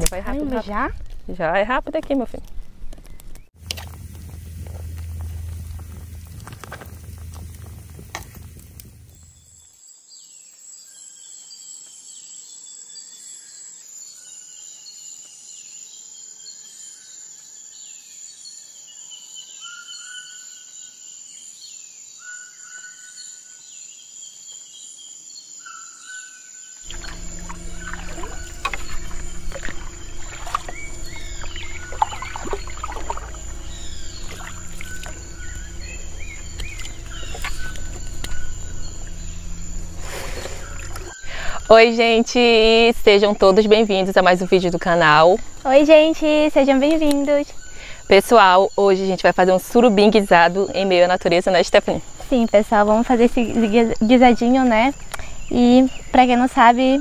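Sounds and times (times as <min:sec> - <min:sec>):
insect pulsing high: 0:03.6 - 0:09.7, 0:26.9 - 0:48.6
background music with bass: 0:26.9 - 0:41.2
birds whistling calls: 0:26.9 - 0:41.8.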